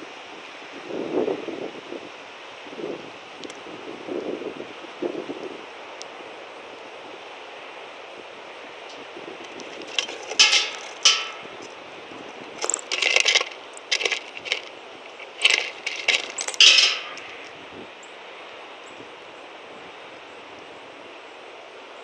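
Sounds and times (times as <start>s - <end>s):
bird pecking seeds on wooden board: 9.5s - 11.7s, 12.5s - 17.5s.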